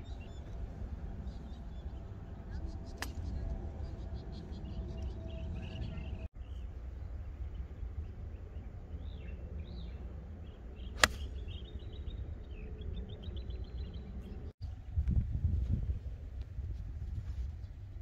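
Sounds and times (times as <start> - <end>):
birds chirping: 0.0 - 14.6
golf club striking ball: 11.0 - 11.3
wind on microphone: 14.6 - 18.0.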